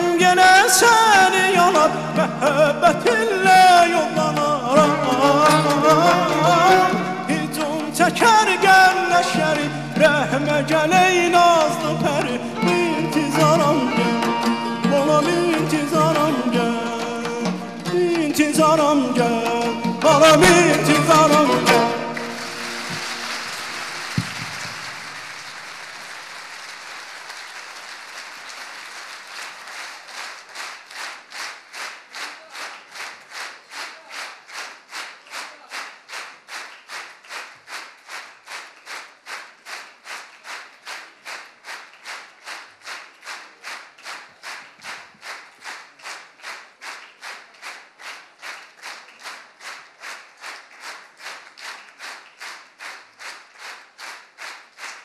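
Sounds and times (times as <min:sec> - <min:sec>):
audience applause: 0:00.0 - 0:55.0
rhythmic clapping in unison: 0:00.0 - 0:55.0
sharp knock: 0:24.1 - 0:24.8.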